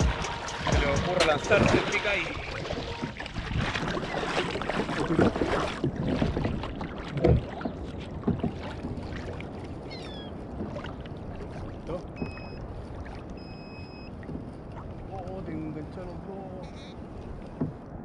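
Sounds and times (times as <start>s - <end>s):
paddle strokes splashing: 0.0s - 18.0s
water lapping against hull: 0.0s - 18.0s
knock on kayak: 5.2s - 9.0s.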